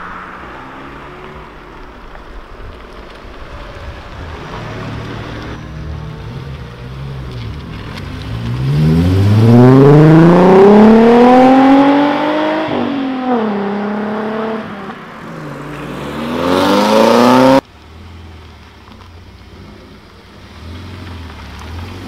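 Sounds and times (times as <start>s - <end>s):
car engine idling quietly: 1.3s - 8.6s, 17.6s - 22.0s
car engine revving: 4.3s - 22.0s.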